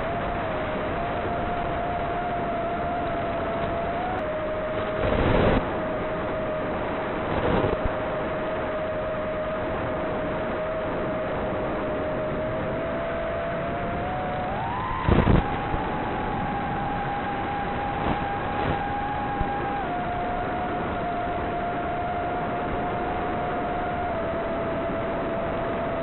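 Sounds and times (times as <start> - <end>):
drone motors whining: 0.0 - 26.0.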